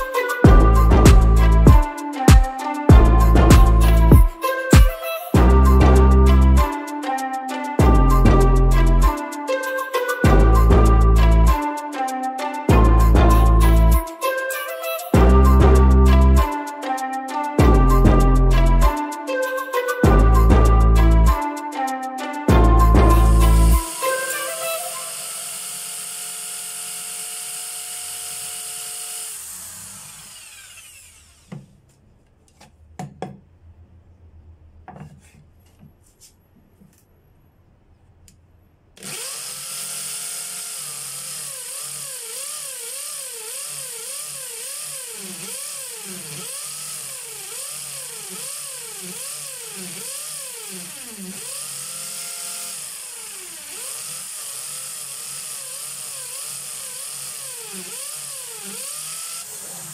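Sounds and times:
electric drill boring wood: 22.9 - 31.7, 39.0 - 59.9.

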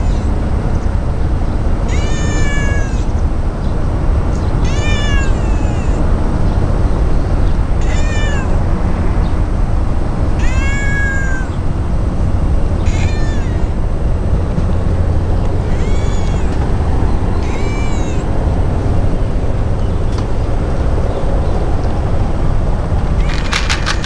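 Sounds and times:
cat meowing: 1.9 - 3.2, 4.4 - 6.2, 7.8 - 8.7, 10.4 - 11.8, 12.8 - 14.0, 15.5 - 18.5, 23.2 - 24.0.

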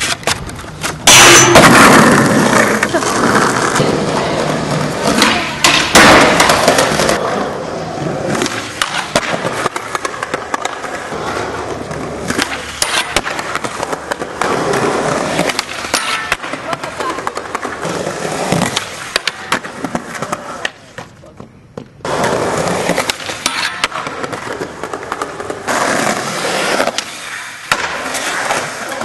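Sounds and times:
skateboard clacking on ground: 0.0 - 7.6, 8.2 - 29.0
skateboard wheels rolling on asphalt: 0.0 - 29.0.

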